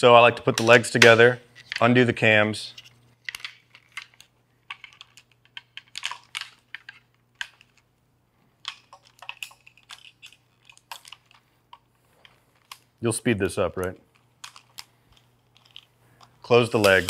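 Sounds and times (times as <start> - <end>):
tripod legs clicking and clacking: 8.6 - 12.9.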